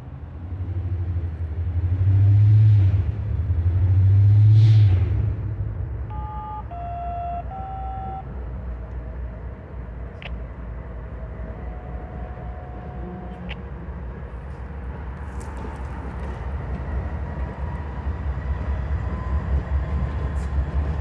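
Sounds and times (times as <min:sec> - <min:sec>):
diesel locomotives rumbling past: 0:00.0 - 0:21.0
short horn tones: 0:06.1 - 0:08.2.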